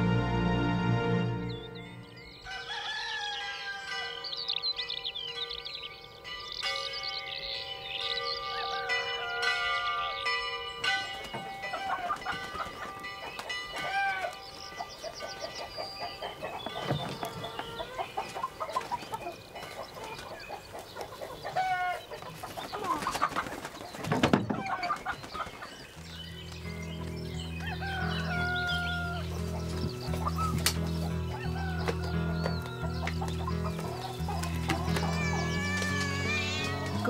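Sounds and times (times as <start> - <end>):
music: 0.0 - 2.8, 26.0 - 37.0
chickens clucking: 8.3 - 37.0.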